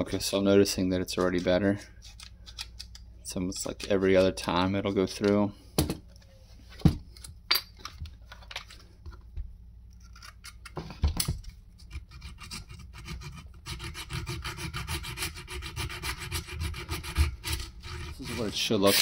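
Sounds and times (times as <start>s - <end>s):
file rasping on metal: 11.9s - 19.0s.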